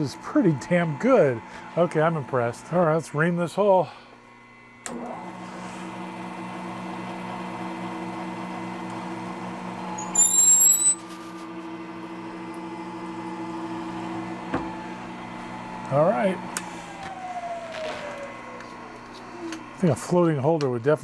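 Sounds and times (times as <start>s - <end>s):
reamer squealing: 10.0s - 11.7s.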